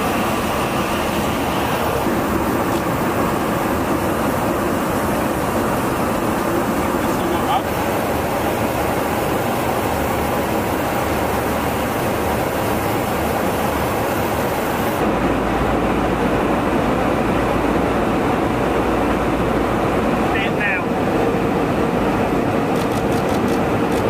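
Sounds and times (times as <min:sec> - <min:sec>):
airflow and jet engines: 0:00.0 - 0:24.0.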